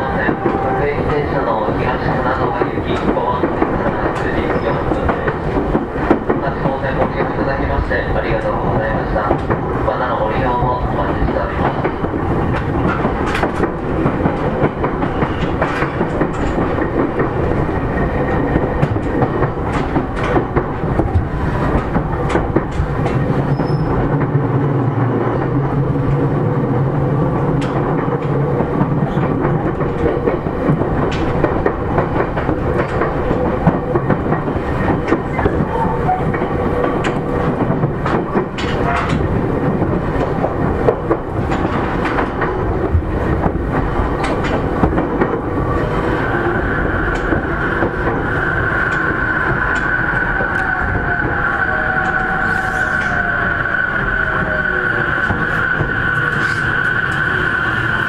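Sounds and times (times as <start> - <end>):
train wheels rumbling on rails: 0.0 - 58.0
wheels clicking over rail joints: 27.6 - 45.5.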